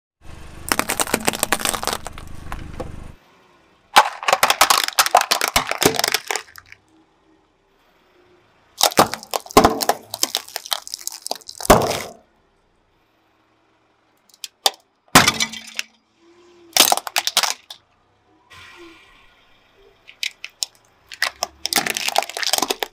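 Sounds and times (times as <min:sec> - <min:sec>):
walnut shells cracking: 0:00.7 - 0:02.3, 0:04.0 - 0:06.8, 0:08.8 - 0:12.2, 0:14.3 - 0:14.8, 0:16.8 - 0:17.8, 0:20.1 - 0:22.9
tyre crushing objects: 0:00.7 - 0:02.9, 0:04.0 - 0:06.8, 0:08.8 - 0:12.2, 0:16.8 - 0:17.8, 0:20.1 - 0:22.9.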